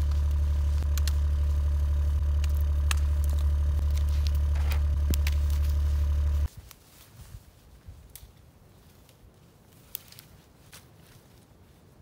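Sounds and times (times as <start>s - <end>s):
engine idling: 0.0s - 6.5s
light snaps and crackles: 0.0s - 7.1s, 7.9s - 11.4s.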